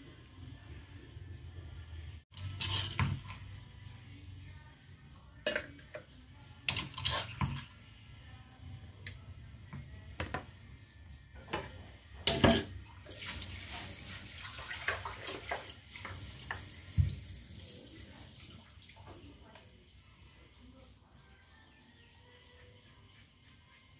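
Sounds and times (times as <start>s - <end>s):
utensils knocking on metal pot: 11.4s - 12.8s
running water: 12.5s - 19.5s.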